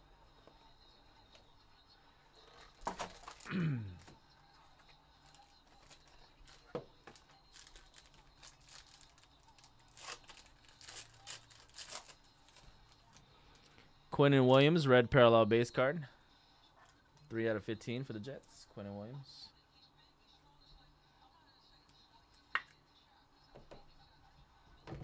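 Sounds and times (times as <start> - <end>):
packaging tearing and crinkling: 2.6 - 4.1, 5.3 - 13.2.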